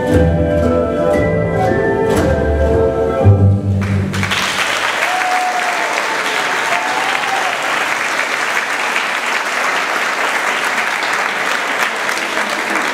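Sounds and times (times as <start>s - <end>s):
music: 0.0s - 4.6s
audience applauding: 3.8s - 12.9s.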